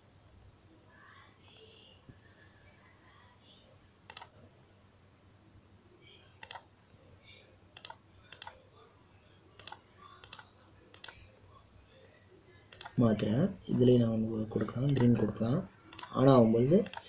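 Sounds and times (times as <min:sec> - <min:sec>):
computer mouse clicking: 0:04.1 - 0:04.3, 0:06.4 - 0:06.7, 0:07.8 - 0:08.6, 0:09.6 - 0:11.2, 0:12.7 - 0:13.0, 0:14.7 - 0:15.2, 0:15.9 - 0:16.2, 0:16.8 - 0:17.0.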